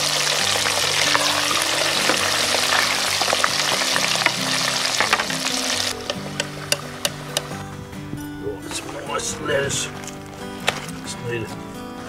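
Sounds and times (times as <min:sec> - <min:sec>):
chips sizzling in deep fryer oil: 0:00.0 - 0:07.0.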